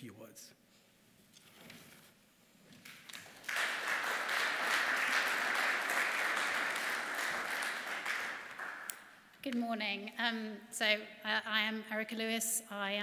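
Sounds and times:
audience applauding: 0:02.8 - 0:09.1.

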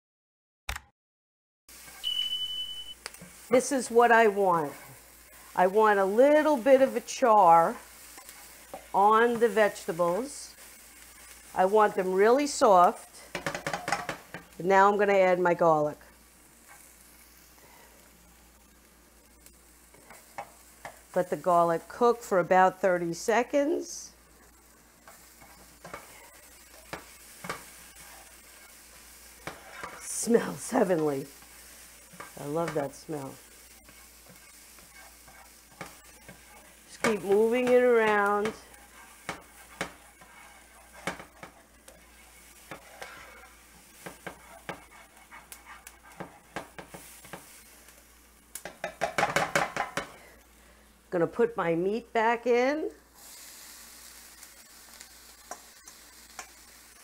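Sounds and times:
vegetables sizzling in a skillet: 0:01.7 - 0:57.0
spatula scraping and knocking pan: 0:03.2 - 0:12.0, 0:13.2 - 0:14.6, 0:19.9 - 0:22.1, 0:24.4 - 0:47.7, 0:48.6 - 0:50.3, 0:54.9 - 0:57.0.

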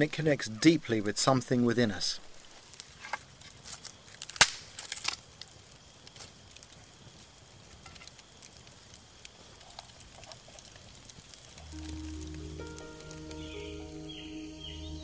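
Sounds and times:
campfire crackling and popping: 0:00.0 - 0:14.4.

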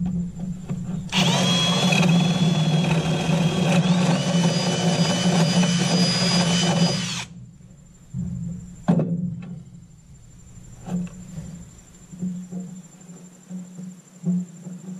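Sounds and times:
drill boring through wood: 0:01.1 - 0:07.3.

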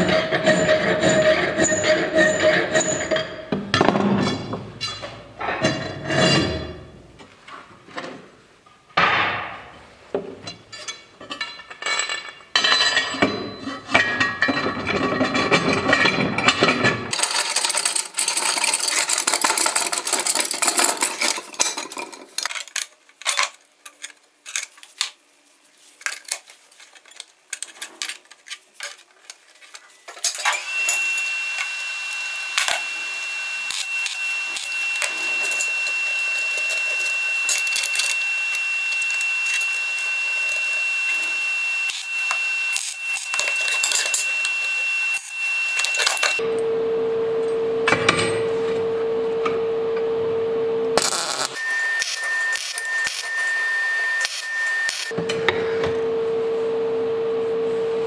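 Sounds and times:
metal clinks knocks and scraping: 0:00.0 - 0:07.0, 0:10.2 - 0:25.3, 0:33.7 - 0:38.3, 0:42.8 - 0:46.4
steady hiss with high tone: 0:29.9 - 0:47.0, 0:50.8 - 0:55.1.

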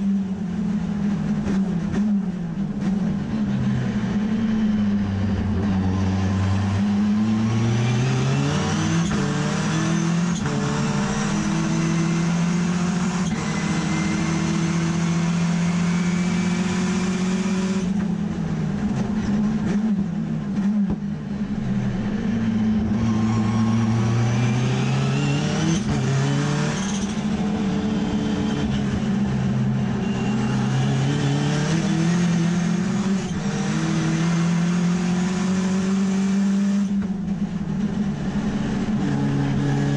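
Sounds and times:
race car engine accelerating: 0:00.0 - 0:39.9.

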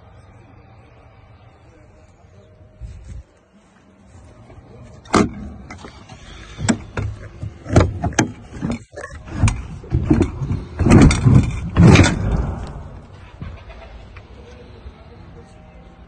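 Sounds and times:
metal latch clacks and clunks: 0:05.0 - 0:05.9, 0:06.6 - 0:12.8.

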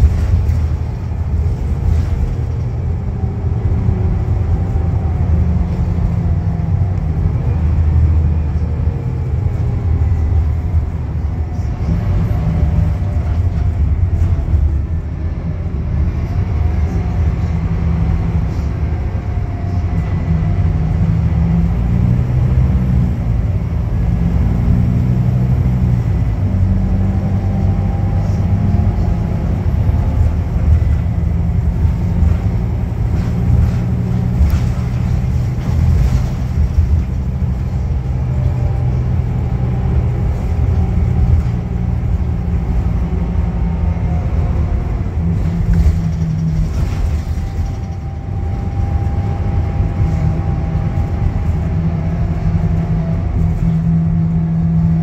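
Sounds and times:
bus diesel engine drone: 0:00.0 - 0:55.0
engine whine: 0:00.0 - 0:55.0.

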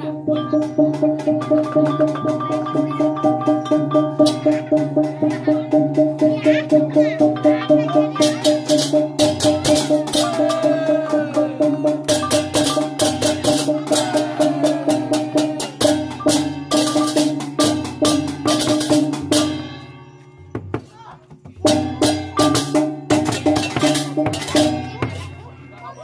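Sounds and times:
hand cymbals clashing: 0:00.0 - 0:20.5, 0:21.7 - 0:26.0
drums: 0:00.0 - 0:26.0
ringing metal tones: 0:07.0 - 0:20.6.

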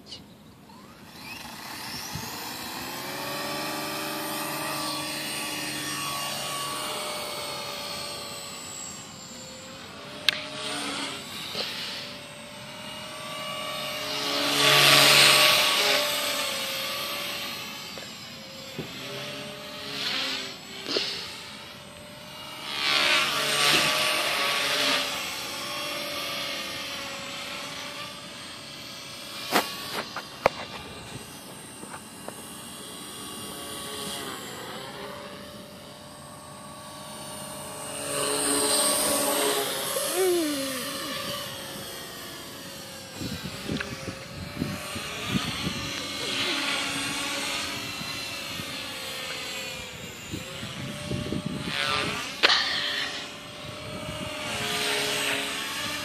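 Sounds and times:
rc helicopter rotor whir: 0:00.0 - 0:56.0.

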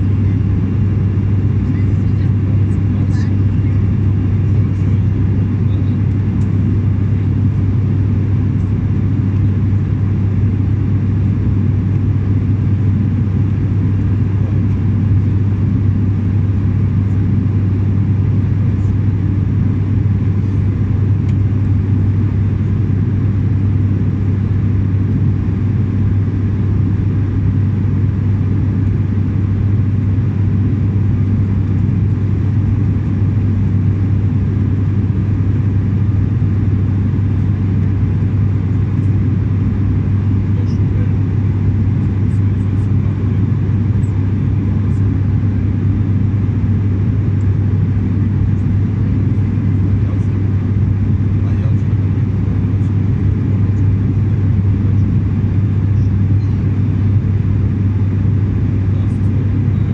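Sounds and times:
engine and airflow rush: 0:00.0 - 0:59.9
turboprop cabin drone: 0:00.0 - 0:59.9.

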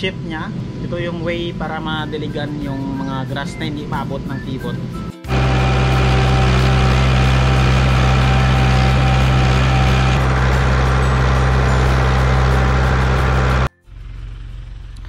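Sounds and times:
vehicle engine running: 0:05.3 - 0:15.0.

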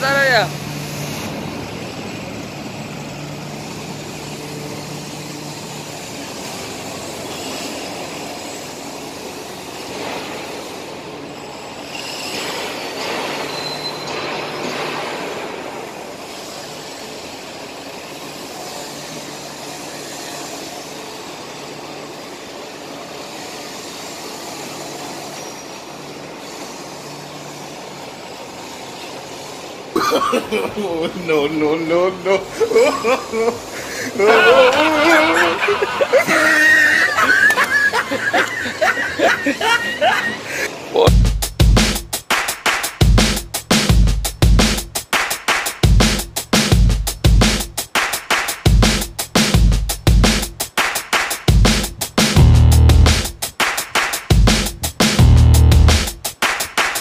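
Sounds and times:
steady background noise: 0:00.0 - 0:57.0
toy car motor whirring: 0:22.8 - 0:29.8, 0:32.6 - 0:40.3.

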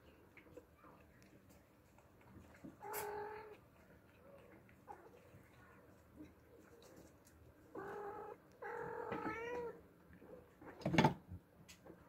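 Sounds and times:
cat meowing: 0:07.8 - 0:09.8.

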